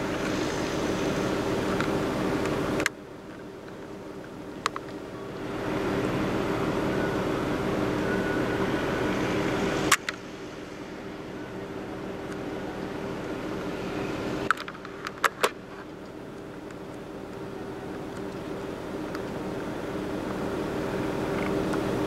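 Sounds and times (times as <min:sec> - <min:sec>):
hiss: 0:00.0 - 0:02.8, 0:05.2 - 0:15.2
mechanical hum: 0:00.0 - 0:22.0.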